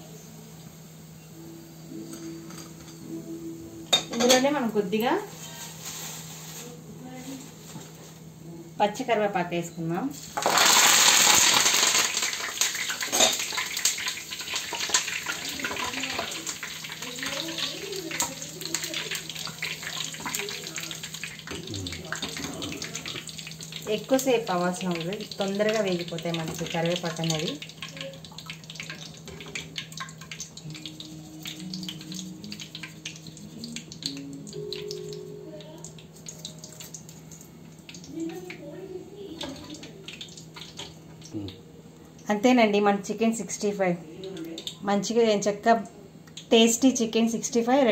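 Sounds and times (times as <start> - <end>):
leaves sizzling in hot oil: 4.2 - 7.8, 10.1 - 41.4.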